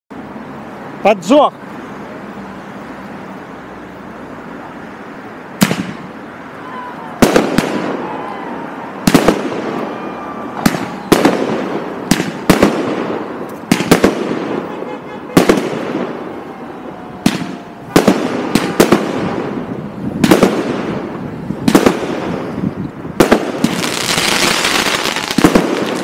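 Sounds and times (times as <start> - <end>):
firework bangs with echo: 5.6 - 6.1, 7.2 - 8.3, 9.0 - 16.3, 17.2 - 22.6, 23.2 - 26.0.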